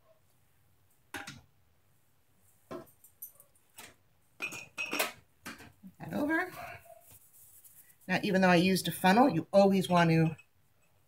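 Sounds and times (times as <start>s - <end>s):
glass jars clinking: 4.4s - 5.2s.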